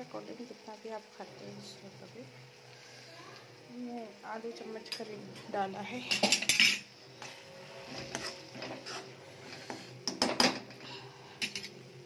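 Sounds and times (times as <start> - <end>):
faint sizzle of frying: 0.0 - 12.0
spoon scraping a pan: 6.1 - 10.5, 11.4 - 11.8.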